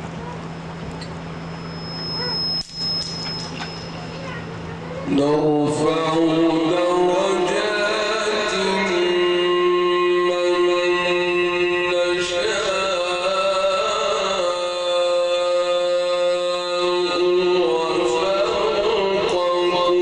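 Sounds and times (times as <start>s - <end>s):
man reciting melodically: 5.1s - 20.0s.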